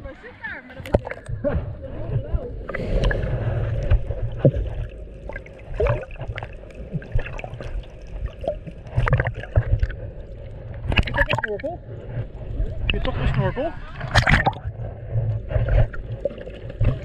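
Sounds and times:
muffled underwater rumble: 0.0s - 17.0s
water sloshing and gurgling: 0.6s - 17.0s
water knocking against camera: 0.8s - 2.4s, 8.8s - 10.0s, 10.8s - 11.7s.

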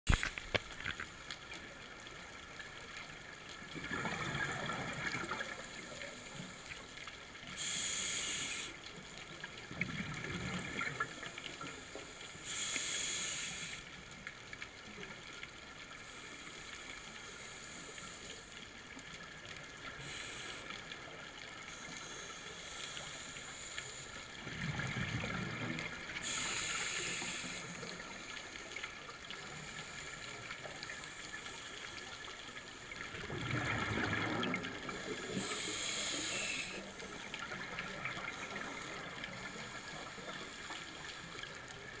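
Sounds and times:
faint steady hum: 0.1s - 42.0s
exhaled bubbles rumbling: 3.7s - 5.8s, 9.7s - 11.2s, 24.4s - 26.3s, 33.1s - 35.6s
regulator inhale hiss: 6.3s - 9.1s, 11.6s - 14.1s, 16.0s - 18.6s, 19.8s - 24.4s, 26.2s - 28.8s, 35.0s - 37.4s.

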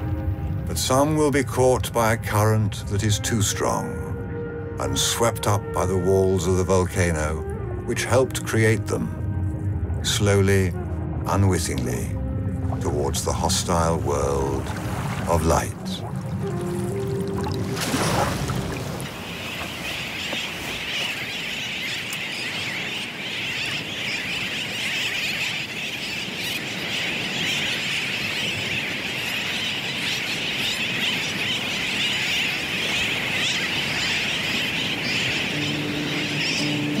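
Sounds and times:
seabirds calling: 0.0s - 37.0s.

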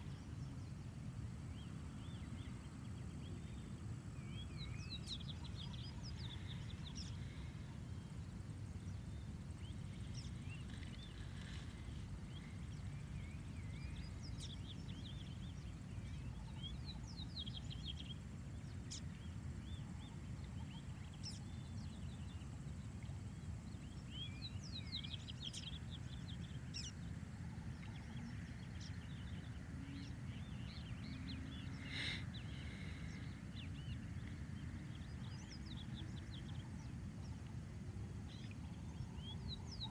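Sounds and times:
small birds chirping: 0.0s - 39.9s
steady low rumble: 0.0s - 39.9s.

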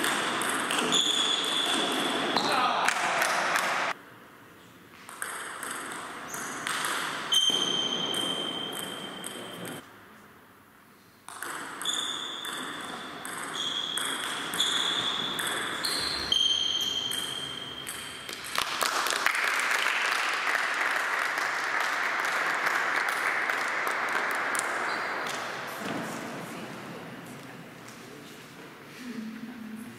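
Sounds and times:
hand clapping: 18.3s - 25.5s.

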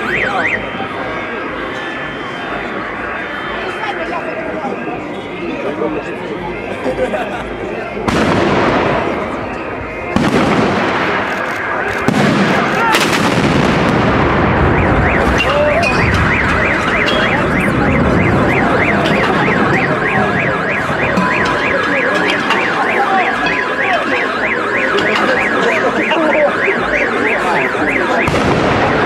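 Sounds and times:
car alarm whooping: 0.0s - 29.0s
rumble of gunfire: 8.1s - 9.4s, 10.1s - 15.4s, 28.2s - 29.0s.

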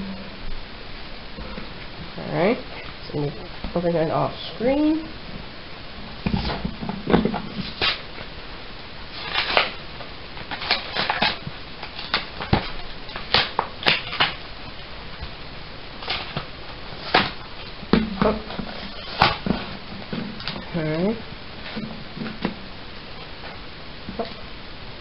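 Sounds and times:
packaging crinkling and ripping: 9.1s - 9.8s, 10.4s - 14.4s, 16.0s - 20.7s.

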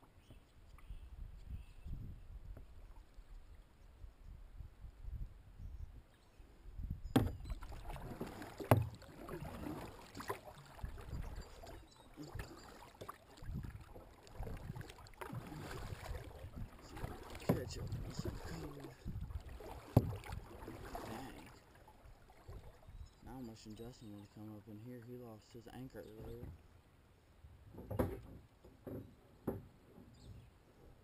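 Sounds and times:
kayak paddle splashing: 7.2s - 23.4s.

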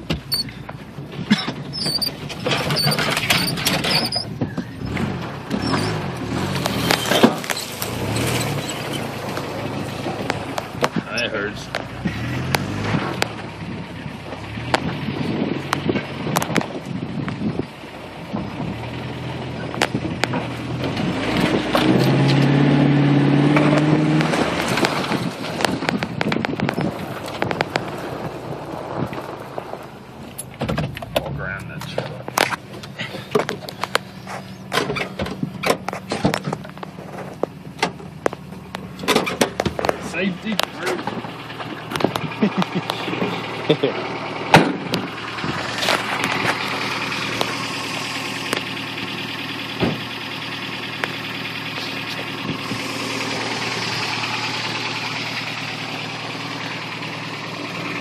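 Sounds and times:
engine running low: 0.0s - 58.0s
vehicle body creaking and rattling: 0.0s - 58.0s
branches scraping and snapping: 4.9s - 11.0s, 23.5s - 31.2s, 44.9s - 48.7s.

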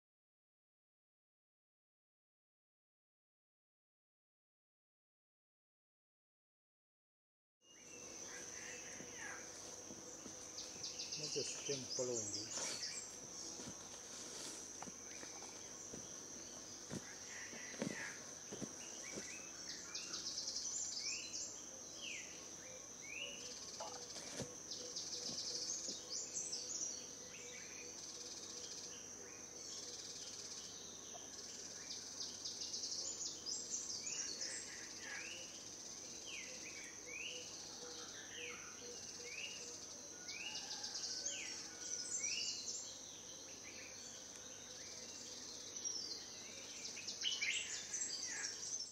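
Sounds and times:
high-pitched insect drone: 7.7s - 42.8s.

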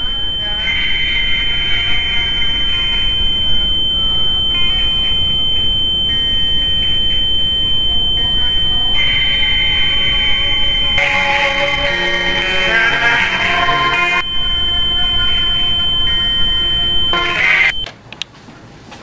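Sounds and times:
low rumble: 0.0s - 17.8s
high-pitched ringing tone: 0.0s - 17.9s.

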